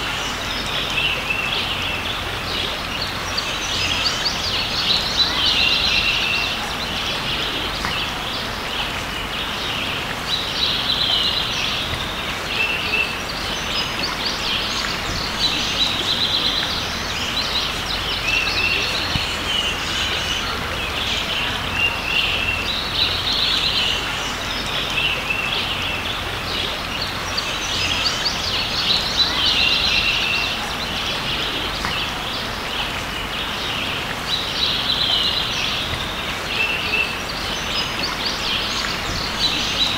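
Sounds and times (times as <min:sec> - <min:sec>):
creek water running: 0:00.0 - 0:39.9
songbirds singing: 0:00.0 - 0:39.9.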